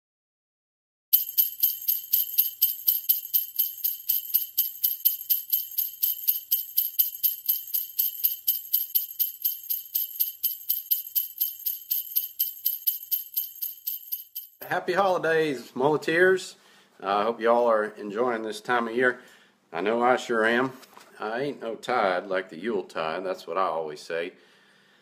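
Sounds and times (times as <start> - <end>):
jingle bells shaken: 1.1 - 14.8.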